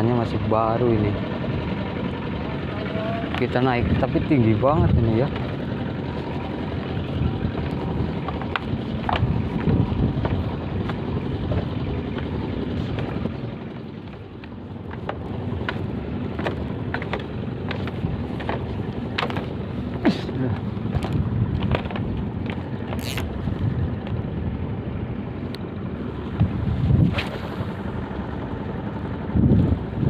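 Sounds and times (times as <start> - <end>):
footsteps on bamboo walkway: 6.2 - 23.2
wind noise on microphone: 6.4 - 13.7, 20.9 - 25.1, 26.2 - 28.1, 29.1 - 30.0.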